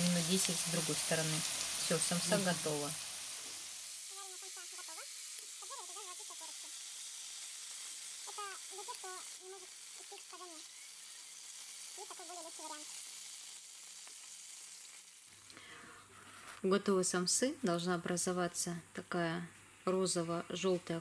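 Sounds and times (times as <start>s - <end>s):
oil sizzling in a frying pan: 0.0s - 15.6s
high-pitched voice talking quietly: 8.3s - 10.6s, 12.0s - 12.9s.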